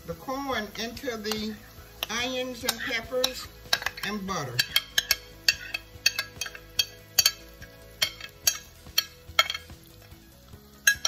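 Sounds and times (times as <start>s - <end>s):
spoon clinking against glass bowl: 2.0s - 9.8s.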